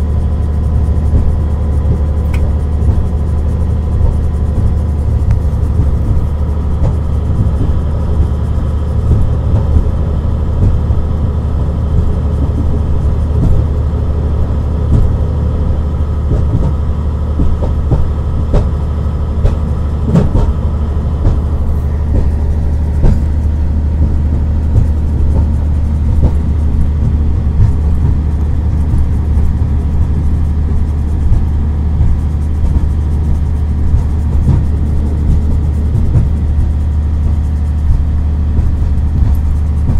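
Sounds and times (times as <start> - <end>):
train rumbling on the track: 0.0 - 39.9
sharp knocks from the track: 17.4 - 18.8, 19.4 - 20.6, 21.2 - 30.3.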